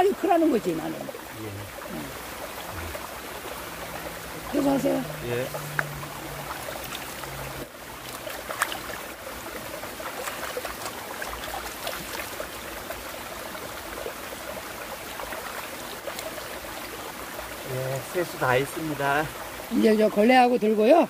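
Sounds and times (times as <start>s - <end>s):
stream trickling over rocks: 0.0s - 21.0s
hands splashing water: 4.6s - 9.2s, 9.8s - 13.0s.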